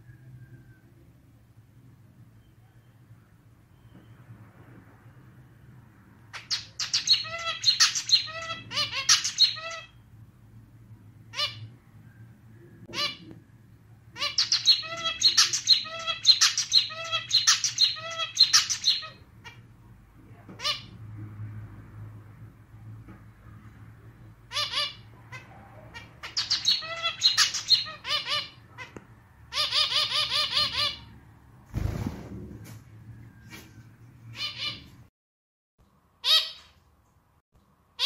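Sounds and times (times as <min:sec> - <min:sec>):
finch singing: 0:06.4 - 0:10.0, 0:14.2 - 0:19.6, 0:24.5 - 0:29.0.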